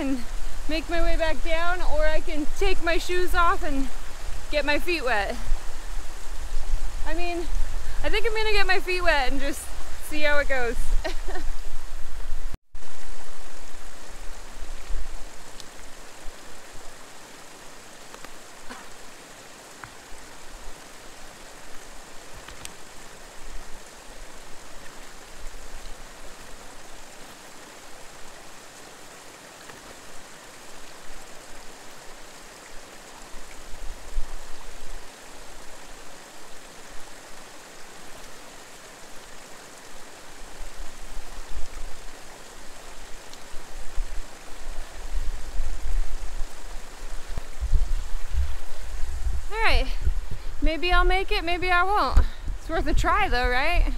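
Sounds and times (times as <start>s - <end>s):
mountain creek rushing: 0.0s - 53.9s
low rumbles: 43.9s - 53.9s.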